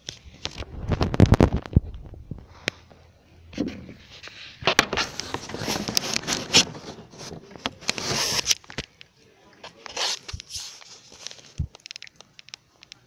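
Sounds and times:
phone handling scrapes and clicks: 0:04.2 - 0:08.9.

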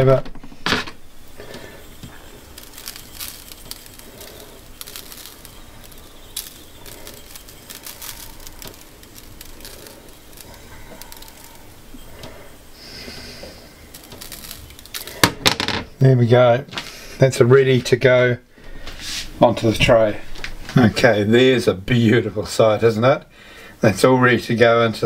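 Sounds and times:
short hiss: 0:00.6 - 0:15.3, 0:18.8 - 0:19.4
salt grains landing on meat: 0:01.4 - 0:12.2.

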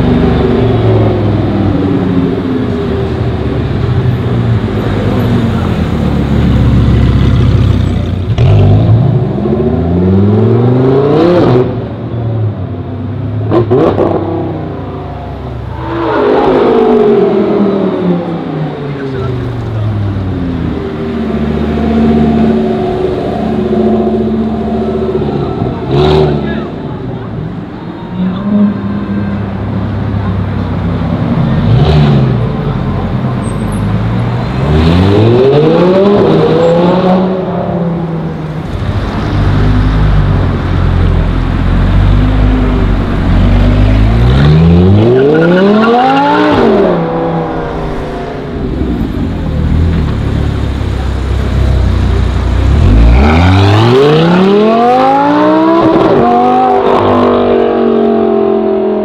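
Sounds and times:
sports car engine revving: 0:34.5 - 0:59.0.

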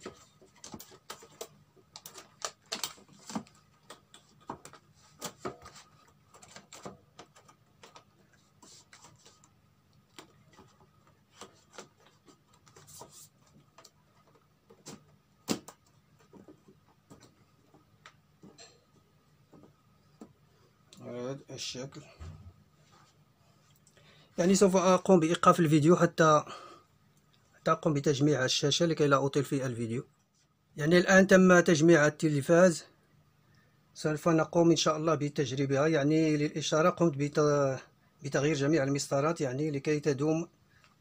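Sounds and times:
plastic sheets clicking and tapping: 0:00.0 - 0:05.7.

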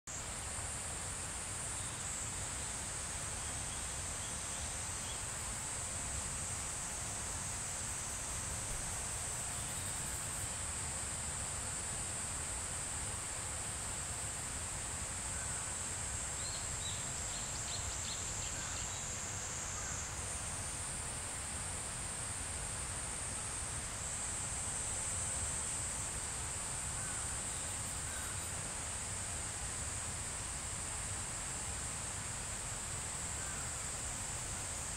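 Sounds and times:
insects singing drone: 0:00.1 - 0:34.9.

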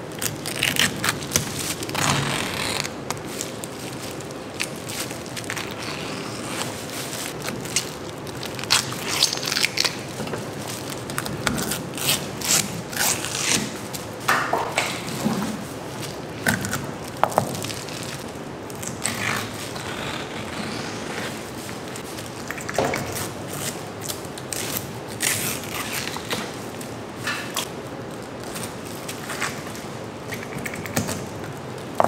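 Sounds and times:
steady background noise: 0:00.0 - 0:32.0.

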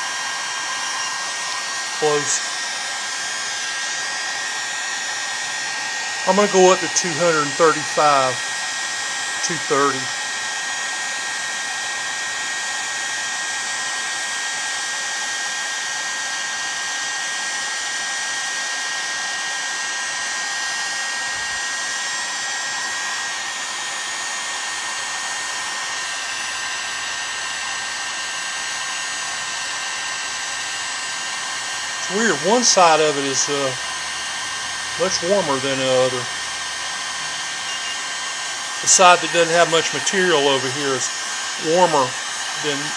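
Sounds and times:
thin whine: 0:00.0 - 0:11.0, 0:21.0 - 0:42.9
heat gun blowing: 0:00.0 - 0:42.9.

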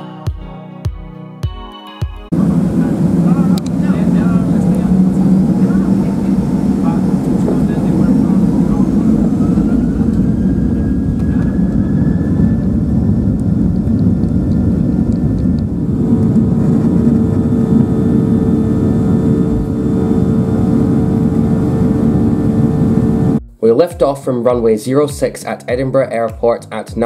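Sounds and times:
jet engines roaring: 0:02.3 - 0:23.4
runway rumble: 0:02.3 - 0:23.4
rising whine: 0:02.3 - 0:23.6
steady hum: 0:02.3 - 0:24.0.

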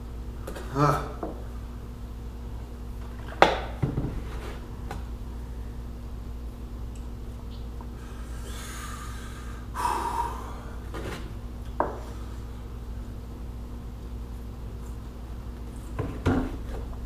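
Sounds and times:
man breathing hard: 0:08.0 - 0:10.9
man blowing out through lips: 0:08.2 - 0:10.8.

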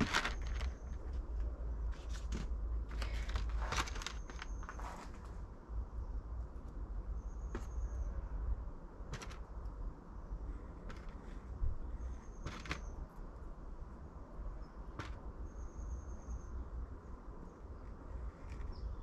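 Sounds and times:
plastic tray crackling: 0:00.0 - 0:05.3, 0:09.1 - 0:09.5, 0:12.4 - 0:12.9.

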